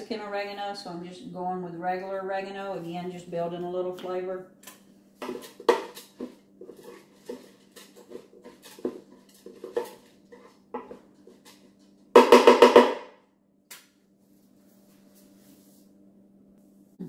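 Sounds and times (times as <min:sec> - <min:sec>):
wooden spoon stirring rice: 0:05.2 - 0:11.8.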